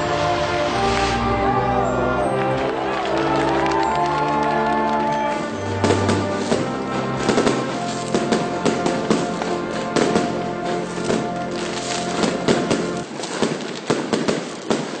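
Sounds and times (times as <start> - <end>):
background music: 0.0 - 13.1
fireworks crackling and popping: 0.0 - 15.0.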